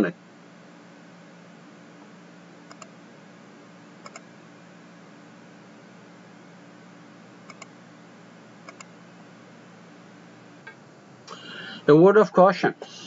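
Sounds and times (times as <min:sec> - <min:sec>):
room tone hiss and hum: 0:00.0 - 0:13.0
computer mouse double clicks: 0:02.7 - 0:02.9, 0:04.0 - 0:04.3, 0:07.5 - 0:07.7, 0:08.7 - 0:08.9.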